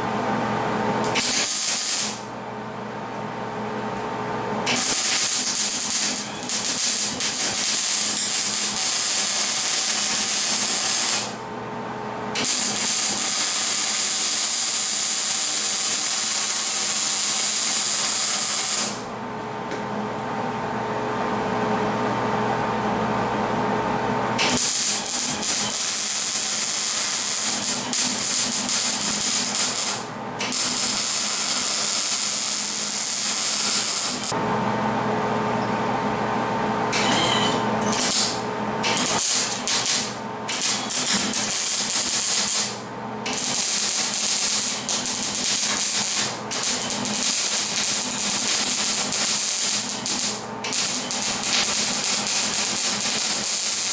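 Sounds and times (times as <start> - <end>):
steady low hum: 0.0 - 14.9, 19.0 - 53.9
arc welding sizzling crackle: 1.0 - 2.3, 4.7 - 11.4, 12.4 - 19.1, 24.4 - 34.4, 37.9 - 53.9.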